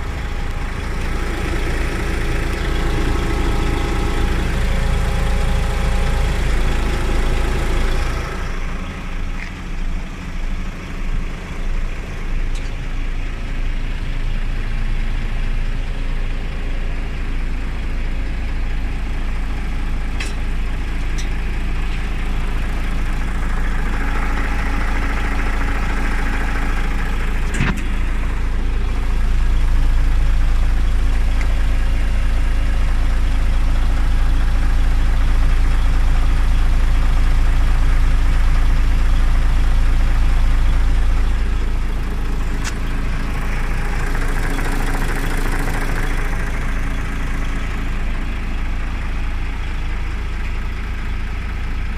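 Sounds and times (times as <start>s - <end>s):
truck diesel engine idling: 0.0s - 51.9s
sharp click: 42.6s - 42.9s.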